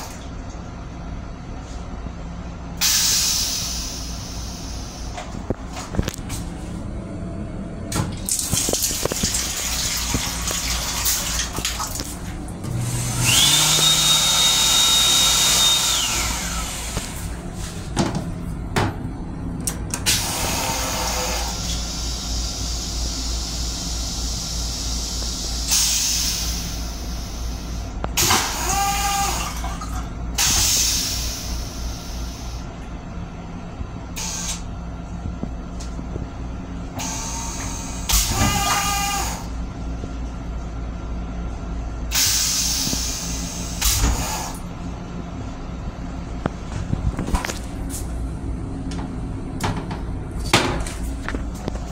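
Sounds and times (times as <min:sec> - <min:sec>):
toilet flushing: 0:00.0 - 0:00.6, 0:07.9 - 0:17.9, 0:19.9 - 0:32.7, 0:37.0 - 0:39.6
train rumble: 0:00.0 - 0:14.8, 0:39.5 - 0:51.9
flush motor: 0:08.2 - 0:17.6, 0:20.0 - 0:32.7, 0:37.0 - 0:39.6.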